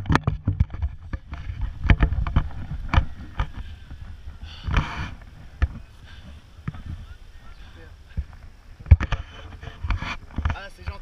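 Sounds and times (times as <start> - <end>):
rustling: 0.0 - 11.0
wind buffeting microphone: 0.0 - 11.0.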